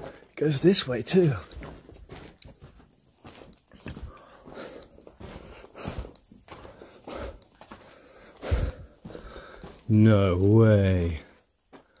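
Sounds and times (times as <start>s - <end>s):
scuffing on loose rock: 0.0s - 12.0s
person breathing: 3.9s - 9.9s.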